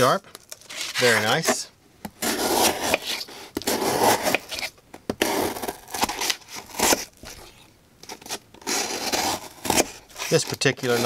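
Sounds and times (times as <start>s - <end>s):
knife slicing through cardboard: 2.2s - 7.4s, 8.0s - 11.0s.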